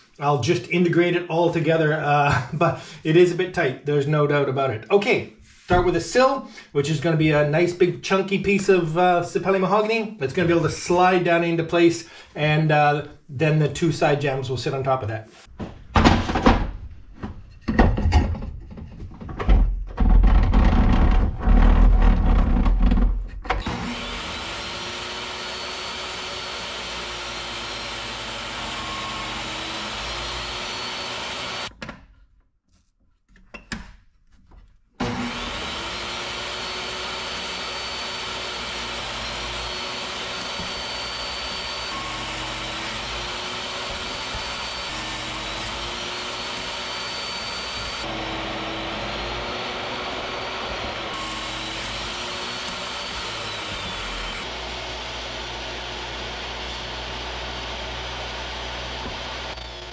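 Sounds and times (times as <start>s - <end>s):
table saw ripping a board: 19.5s - 31.8s, 35.0s - 59.9s.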